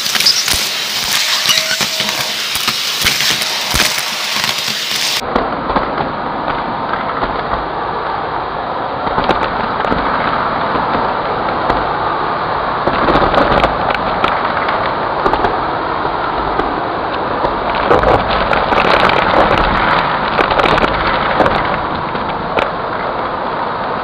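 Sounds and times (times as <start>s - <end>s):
foil bits crackling up vacuum tube: 0.0s - 5.2s
vacuum cleaner running: 0.0s - 5.2s.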